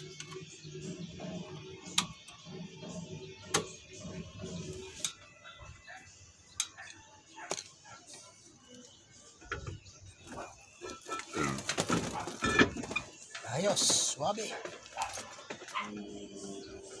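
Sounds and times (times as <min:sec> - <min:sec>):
faint background music: 0:00.0 - 0:17.0.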